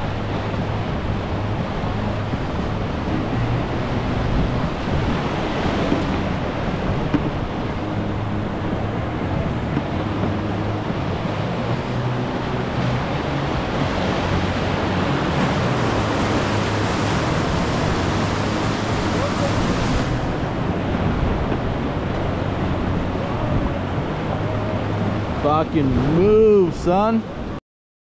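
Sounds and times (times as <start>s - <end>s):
whitewater rapids rushing: 0.0s - 27.6s
wind on microphone: 0.0s - 27.6s.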